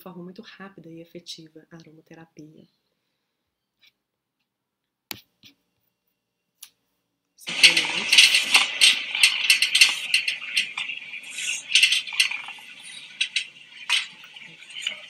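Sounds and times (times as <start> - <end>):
dog gnawing metal gate bars: 7.5 - 15.0.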